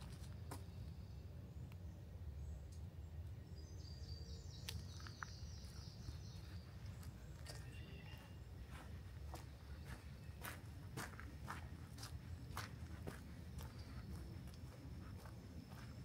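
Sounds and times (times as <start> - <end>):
songbird twittering: 3.5 - 11.3
footsteps on forest floor: 4.6 - 16.0.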